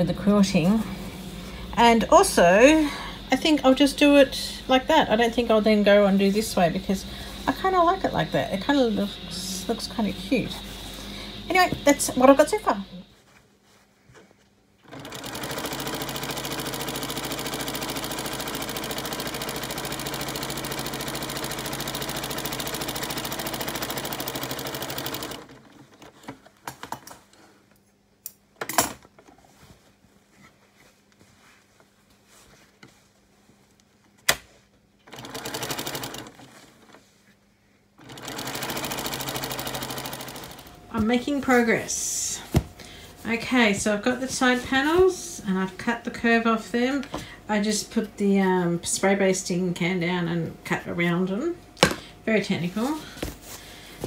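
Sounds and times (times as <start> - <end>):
sewing machine stitching: 14.8 - 26.4, 35.0 - 37.0, 38.0 - 40.7
fabric handling: 29.3 - 34.6.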